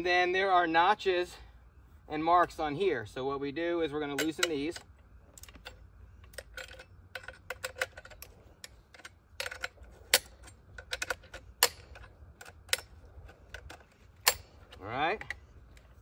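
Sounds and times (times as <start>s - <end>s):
metallic clicks and clinks: 4.0s - 16.0s.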